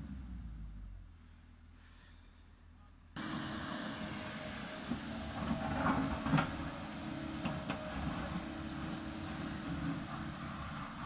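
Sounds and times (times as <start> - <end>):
excavator diesel engine running: 3.2 - 11.0.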